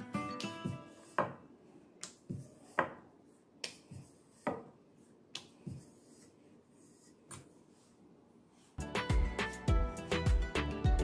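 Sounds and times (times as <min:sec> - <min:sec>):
rolling pin knocking on countertop: 0:01.2 - 0:01.4.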